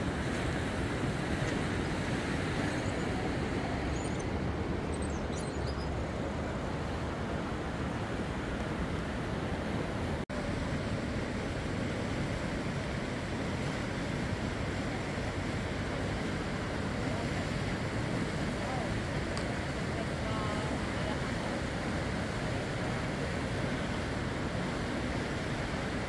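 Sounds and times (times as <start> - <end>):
river rushing: 0.0 - 26.0.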